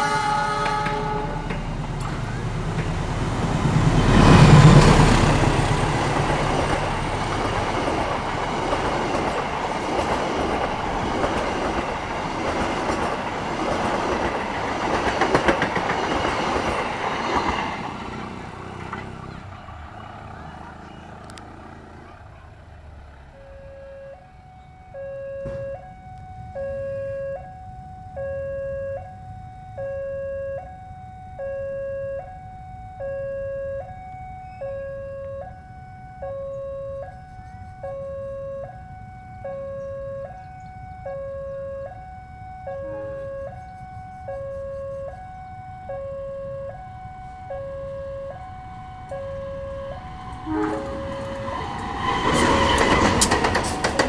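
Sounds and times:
locomotive passing loudly: 0.0 - 26.8, 37.8 - 54.0
level crossing two-tone alarm: 23.3 - 52.8.

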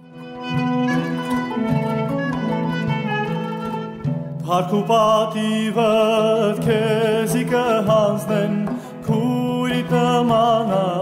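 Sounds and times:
person singing ornamented folk song: 2.6 - 11.0.

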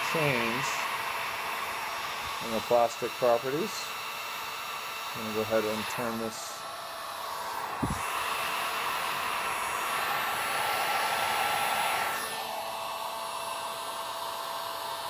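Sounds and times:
heat gun blowing air: 0.0 - 15.0
low thump: 7.8 - 8.1.

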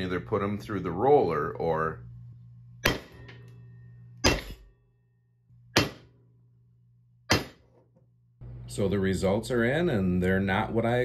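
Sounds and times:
hammer striking metal: 2.8 - 4.8, 5.6 - 6.2, 7.3 - 7.7.

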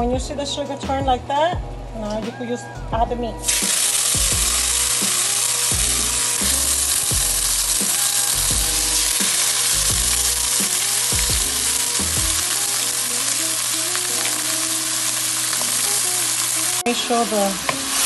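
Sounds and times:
meat sizzling in oil: 3.4 - 18.0.

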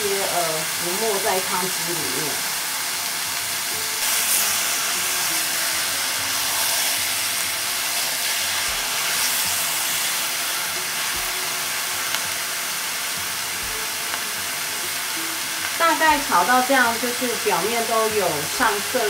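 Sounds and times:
meat sizzling in a pot: 0.0 - 19.0.

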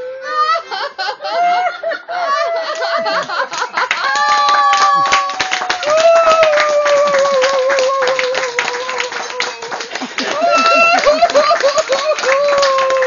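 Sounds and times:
audience clapping: 2.8 - 13.0.

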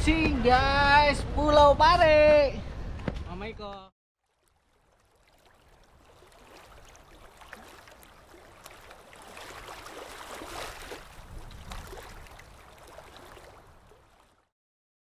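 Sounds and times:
rushing bubbling water: 4.2 - 14.5.

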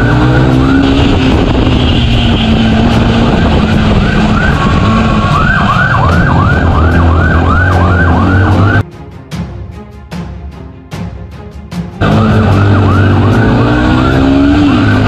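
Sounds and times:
police siren wailing and yelping: 0.0 - 2.2, 2.9 - 8.8, 12.0 - 15.0
motorcycle engine hum: 0.0 - 8.8.

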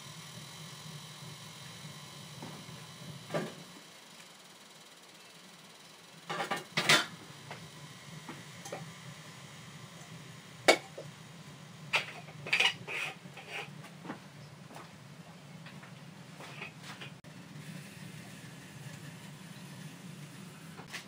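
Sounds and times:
metal kitchenware clattering: 12.0 - 13.7.

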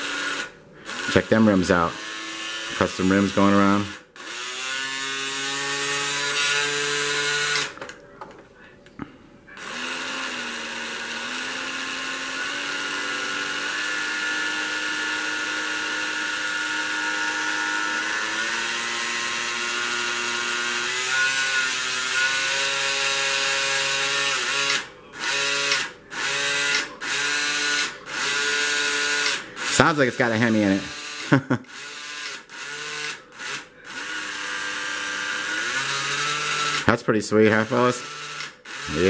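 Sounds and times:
slot car motor whining: 9.7 - 39.0.

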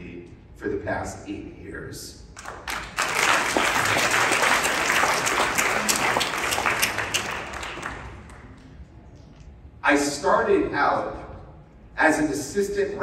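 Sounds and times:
congregation applauding: 2.4 - 8.7.

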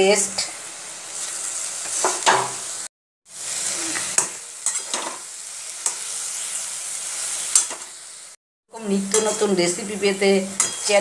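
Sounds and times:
vegetable sizzling in oil: 0.0 - 11.0
metal spatula scraping pan: 4.2 - 5.2, 9.0 - 9.8, 10.5 - 11.0.

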